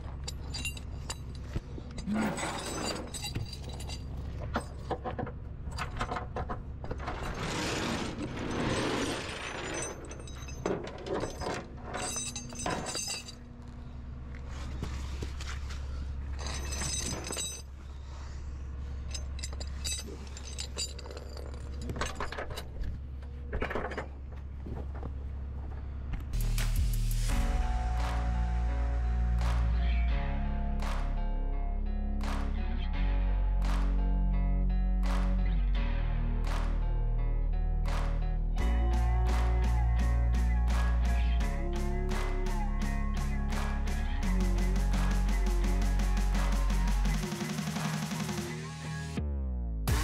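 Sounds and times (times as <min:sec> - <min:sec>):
metal chains clinking: 0:00.0 - 0:04.9, 0:07.0 - 0:13.6, 0:16.3 - 0:17.8, 0:19.0 - 0:22.9.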